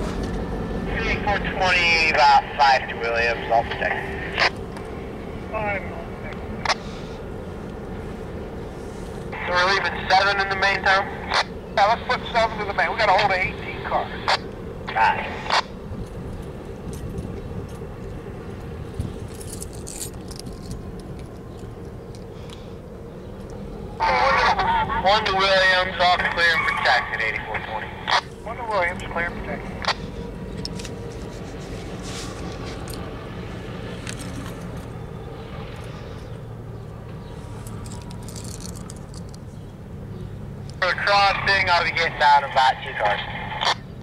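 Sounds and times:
locomotive engine rumble: 0.0 - 44.0
metallic clicks and rattles: 37.6 - 39.4.

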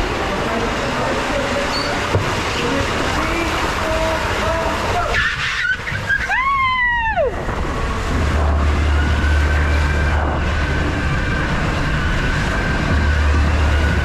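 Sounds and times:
heavy low rumble: 0.0 - 5.2, 5.8 - 14.0
rushing water: 0.0 - 14.0
wind on microphone: 1.6 - 14.0
person whooping: 6.1 - 7.4.

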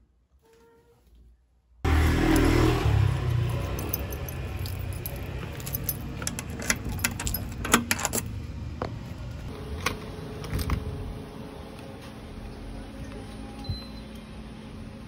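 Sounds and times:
keys jangling: 3.3 - 8.3.

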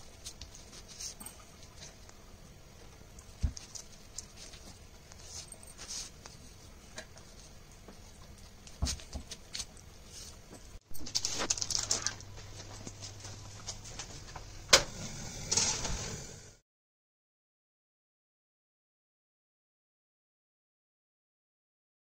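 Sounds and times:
baking paper rustling: 0.0 - 2.0, 3.3 - 14.6.

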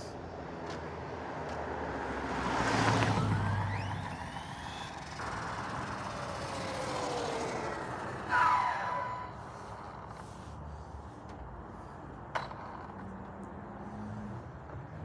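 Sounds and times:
rc truck motor whining: 3.0 - 10.3.

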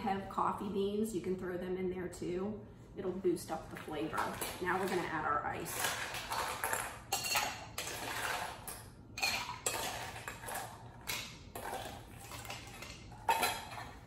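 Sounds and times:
ice clattering against metal: 4.1 - 14.0.

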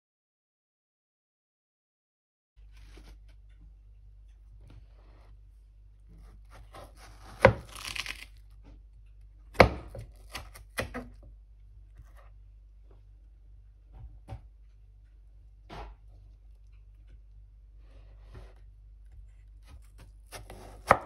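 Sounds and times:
crisp crunch of watermelon cut: 6.5 - 8.6.

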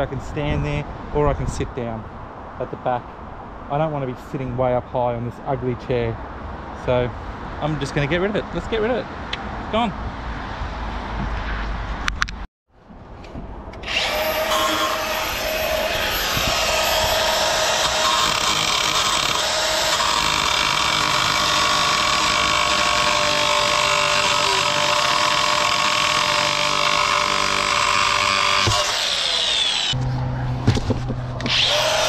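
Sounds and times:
angle grinder cutting metal tube: 13.8 - 30.0, 31.4 - 32.0.

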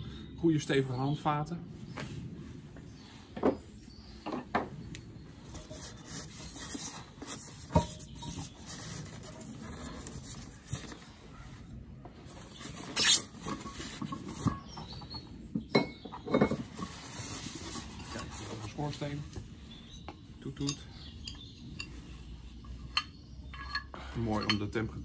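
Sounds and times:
foam and cardboard squeaking: 12.3 - 15.2.

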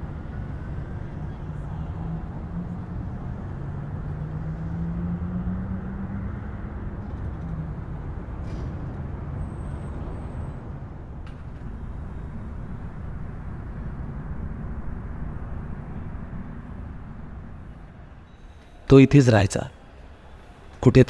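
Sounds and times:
vehicle engine hum: 0.0 - 18.9
city traffic rumble: 0.0 - 21.0.

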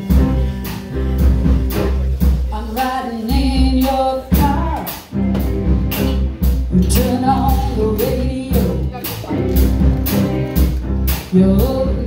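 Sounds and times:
bass guitar: 0.0 - 12.0
drum kit with cymbals: 0.0 - 12.0
woman singing lead: 2.5 - 5.1, 6.6 - 9.3, 11.2 - 12.0
electric guitars: 5.1 - 12.0.

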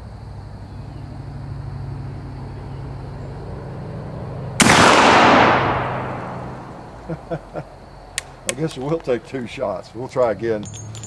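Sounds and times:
muzzleloader gunshot boom: 4.6 - 6.8.

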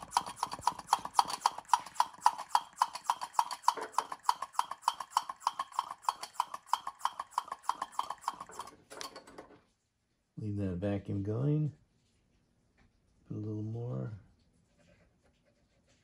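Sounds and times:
hand vacuum pump clicking: 0.0 - 9.4.

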